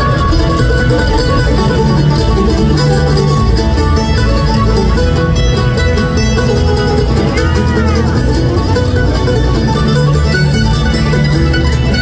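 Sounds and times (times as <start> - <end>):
acoustic guitar: 0.0 - 12.0
banjo: 0.0 - 12.0
fiddle: 0.0 - 12.0
upright bass: 0.0 - 12.0.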